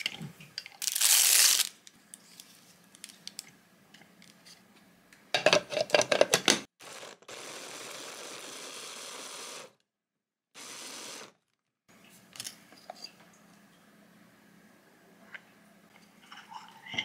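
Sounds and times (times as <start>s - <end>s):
electric blender chopping vegetables: 6.8s - 9.8s, 10.6s - 11.4s.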